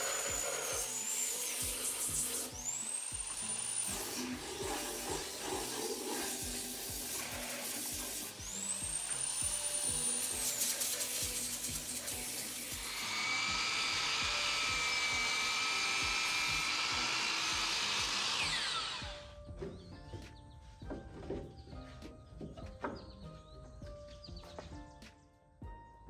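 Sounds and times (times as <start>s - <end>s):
miter saw motor running: 0.0s - 19.4s
belt sander grinding wood: 0.0s - 19.9s
background music with steady beat: 0.0s - 26.0s.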